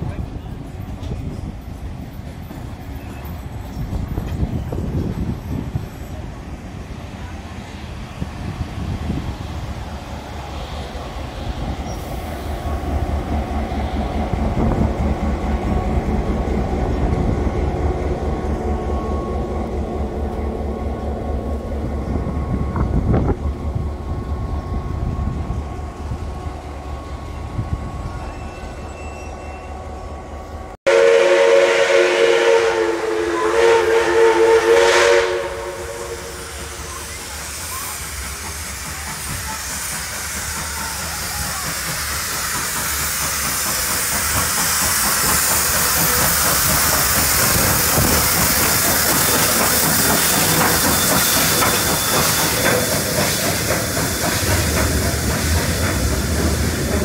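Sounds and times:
diesel locomotive engine throb: 0.1s - 28.8s, 29.4s - 57.0s
steam whistle chord: 30.9s - 37.1s.

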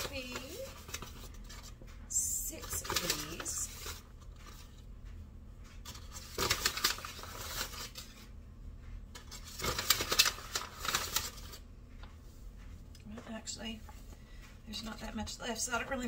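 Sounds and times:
paper bag crinkling: 2.6s - 4.6s, 5.8s - 8.2s, 9.2s - 11.6s.

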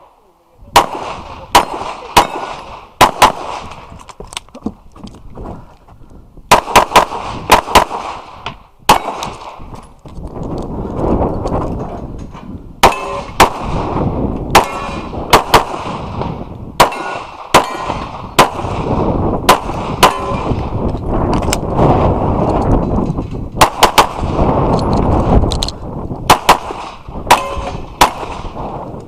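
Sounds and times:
pistol shots: 0.8s - 3.9s, 6.5s - 9.6s, 12.8s - 20.8s, 23.6s - 25.4s, 26.2s - 28.6s.

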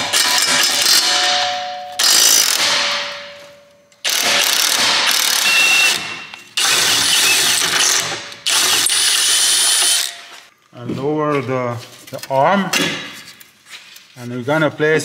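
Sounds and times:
impact wrench hammering: 0.0s - 10.4s.

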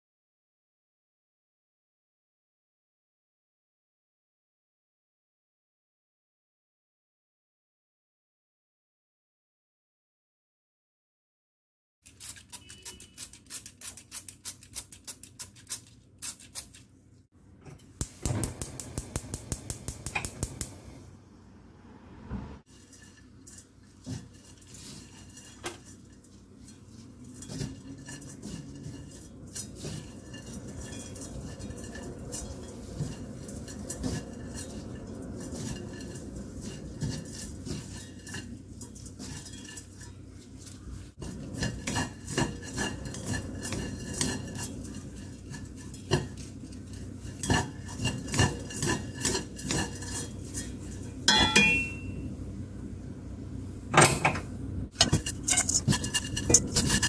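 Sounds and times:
chopsticks tapping a wok: 18.0s - 20.8s, 51.3s - 52.2s
dry rustle in a wok: 22.6s - 51.3s.

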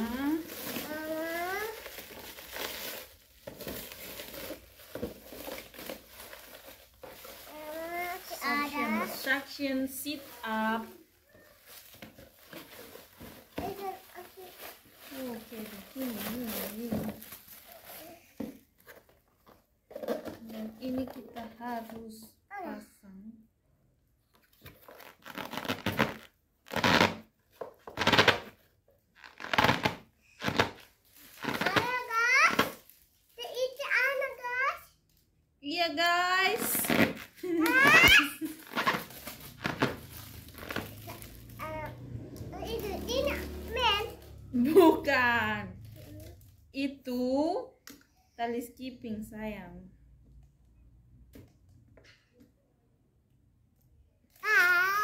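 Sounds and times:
plastic bag crinkling: 0.0s - 18.4s, 29.2s - 34.4s, 36.4s - 46.7s
plastic scraping on plastic: 0.3s - 22.1s, 24.3s - 32.9s, 36.4s - 44.2s.

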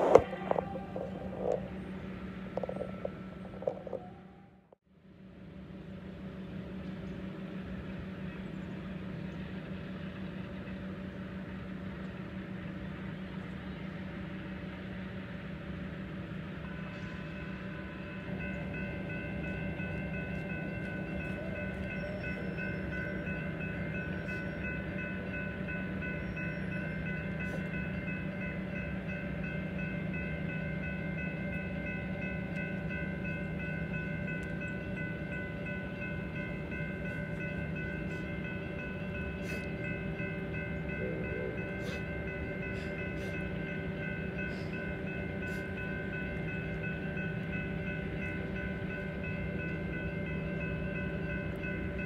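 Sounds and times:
crossing warning bell ringing: 0.0s - 4.6s, 15.8s - 52.0s
low engine drone: 0.0s - 52.0s.

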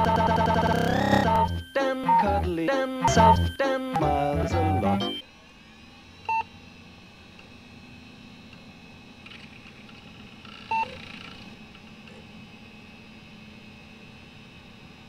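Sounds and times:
short electronic beeps: 0.0s - 5.2s.

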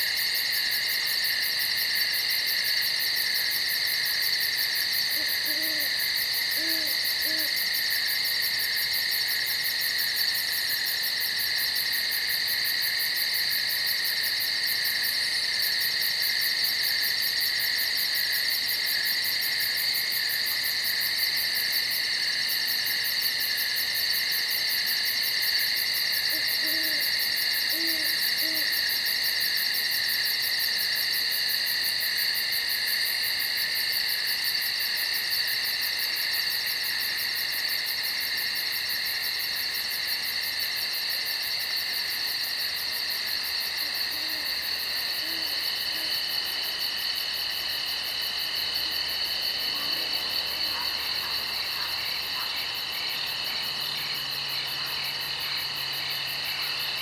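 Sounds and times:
insects trilling: 0.0s - 57.0s
owl hooting: 5.2s - 7.6s, 26.3s - 28.8s, 45.2s - 46.1s.

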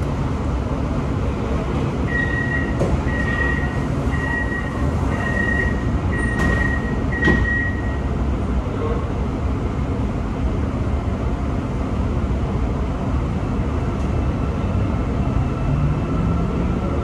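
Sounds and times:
low hum of standing train: 0.0s - 17.0s
high warning beeps: 2.1s - 8.1s.

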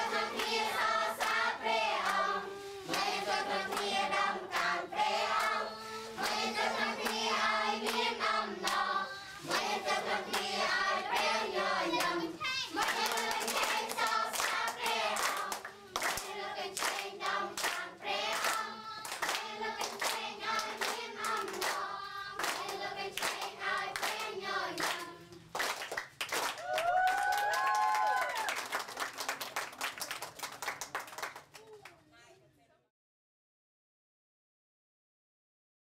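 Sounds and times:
group singing a worship song: 0.0s - 25.4s
hands clapping in time: 12.8s - 20.2s, 20.8s - 21.8s, 22.4s - 31.9s.

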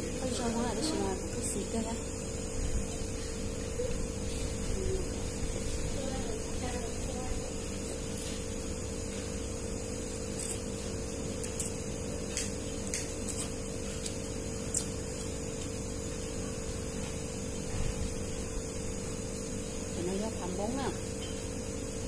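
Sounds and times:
steady hum: 0.0s - 22.0s
eating noodles with chopsticks: 10.1s - 17.2s.

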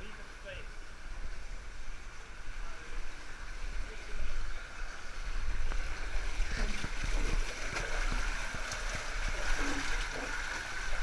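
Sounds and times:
water splashing: 0.0s - 11.0s
water rushing down a slide: 2.8s - 11.0s.

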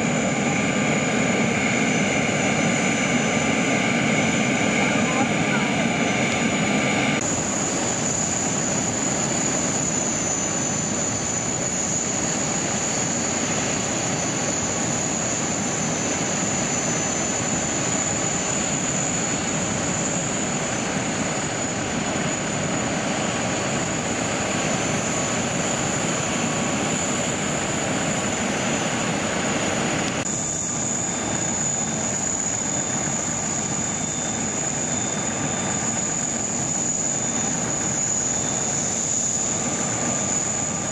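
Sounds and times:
jet engine whine and rumble: 0.0s - 40.9s
high whistle: 30.3s - 40.9s.

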